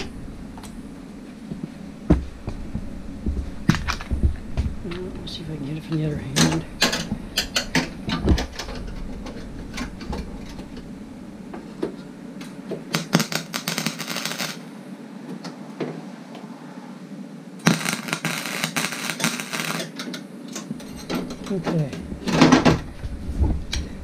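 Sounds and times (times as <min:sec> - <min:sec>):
welder arc crackling on steel: 0:03.6 - 0:10.9, 0:12.4 - 0:14.7, 0:17.6 - 0:23.1.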